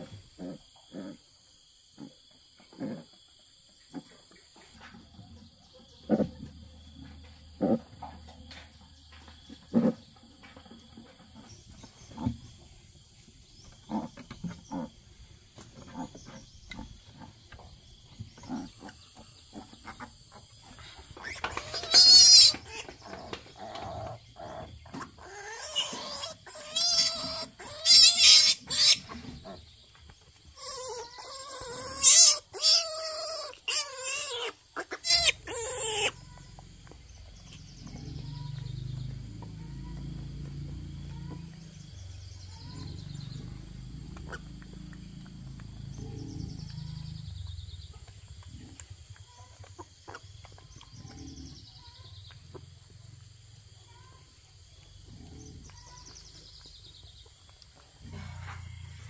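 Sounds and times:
piglet squealing: 0:21.2 - 0:22.9, 0:25.2 - 0:29.2, 0:30.6 - 0:36.4
piglet grunting softly: 0:55.0 - 0:59.0.

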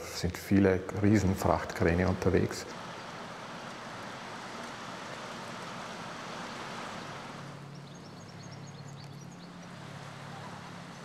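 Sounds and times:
low engine drone: 0:00.0 - 0:11.0
rushing river water: 0:01.0 - 0:11.0
bird twittering: 0:07.6 - 0:11.0.

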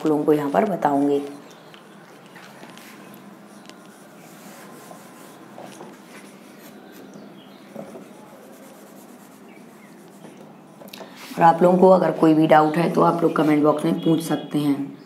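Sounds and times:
eraser rubbing on whiteboard: 0:02.8 - 0:10.4.

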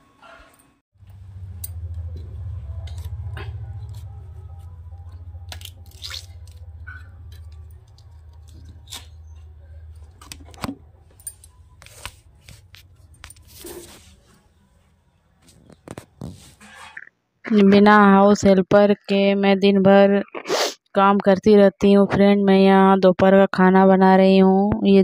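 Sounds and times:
low hum: 0:01.0 - 0:13.5.

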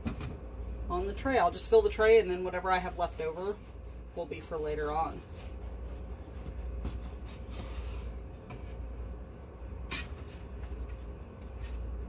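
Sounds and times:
steady low hum: 0:00.0 - 0:12.0
bread knife sawing through loaf: 0:02.5 - 0:08.0.

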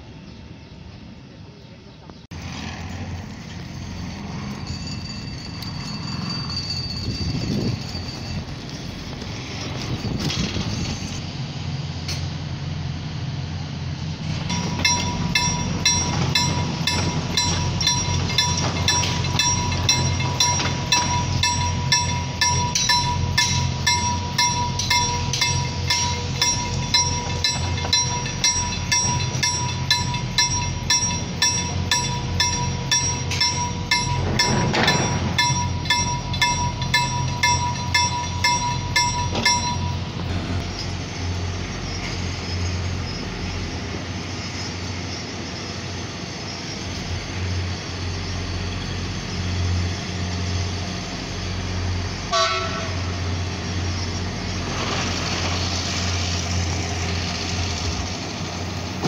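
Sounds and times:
train rumble approaching: 0:00.0 - 0:59.0
level crossing bell dinging: 0:14.5 - 0:40.3
train horn toot: 0:52.3 - 0:53.3.

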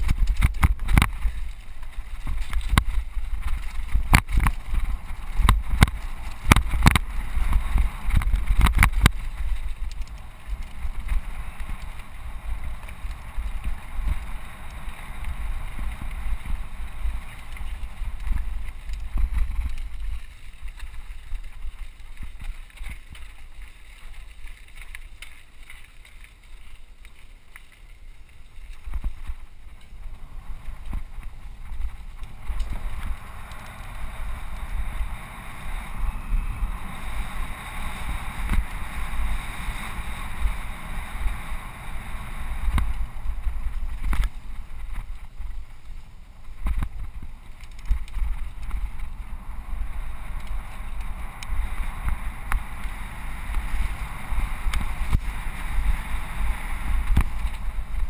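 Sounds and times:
tyres rolling over gravel: 0:00.0 - 0:58.0
wind buffeting microphone: 0:28.8 - 0:58.0.

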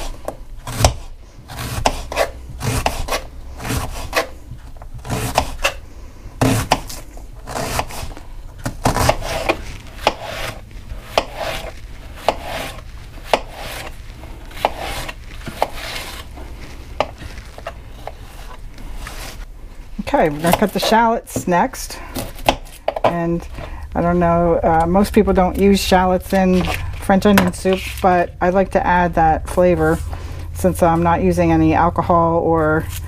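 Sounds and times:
knife rasping through onion: 0:00.0 - 0:05.8, 0:06.4 - 0:19.4.

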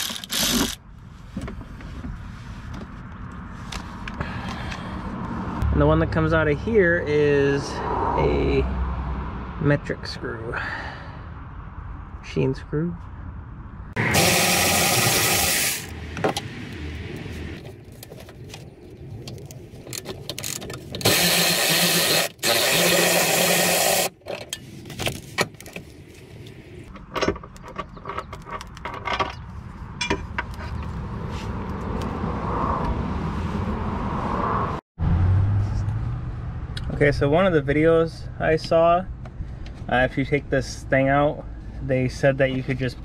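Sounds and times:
power driver spinning bolts: 0:00.0 - 0:00.8, 0:19.9 - 0:24.6.

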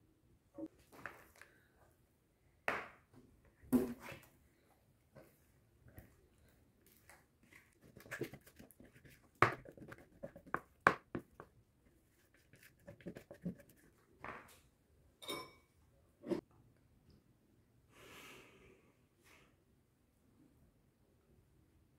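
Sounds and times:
spatula scraping plastic bowl: 0:07.8 - 0:10.8, 0:12.2 - 0:13.9.

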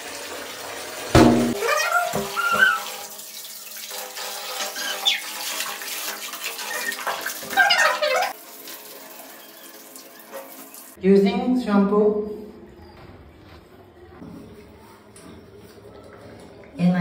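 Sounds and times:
tap water running onto tiled floor: 0:00.0 - 0:11.0, 0:15.1 - 0:17.0
sharp knock: 0:01.2 - 0:01.6.

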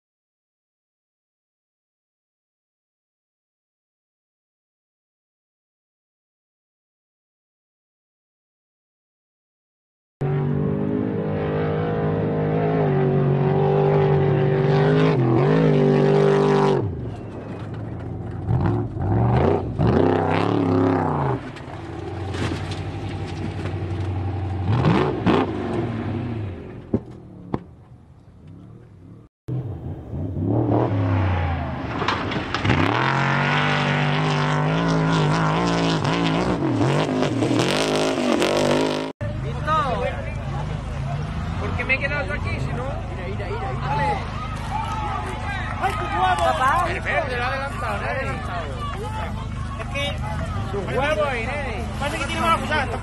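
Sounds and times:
truck engines revving hard: 0:10.2 - 0:27.6, 0:28.5 - 0:53.0.

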